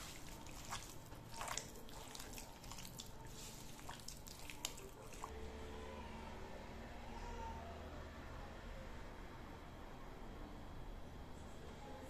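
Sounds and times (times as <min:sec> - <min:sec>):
hand squelching butter: 0:00.0 - 0:05.3.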